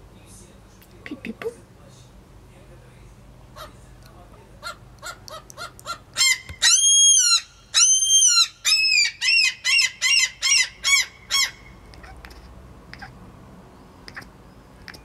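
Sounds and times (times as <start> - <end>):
cat chirping: 4.6 - 13.2, 14.0 - 15.0.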